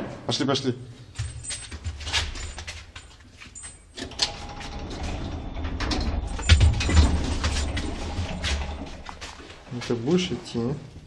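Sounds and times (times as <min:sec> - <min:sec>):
knocking and scuffing: 0:01.1 - 0:03.9, 0:06.4 - 0:10.1
lift rumbling: 0:04.0 - 0:10.0.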